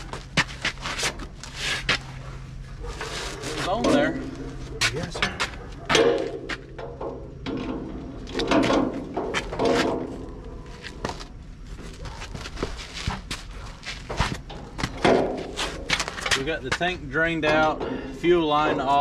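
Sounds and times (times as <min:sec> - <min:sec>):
metal clicks and knocks: 0:04.8 - 0:10.2.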